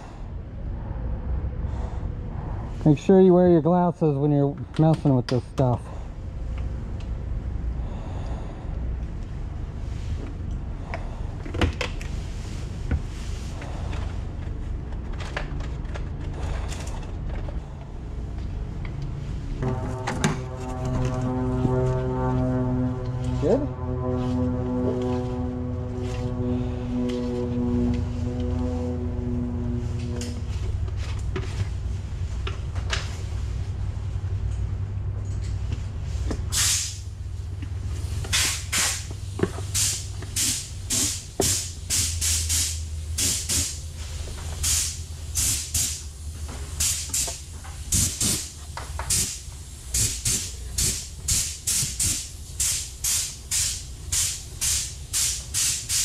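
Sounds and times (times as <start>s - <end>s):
low hum: 0.0s - 46.8s
pitched hum: 5.4s - 46.6s.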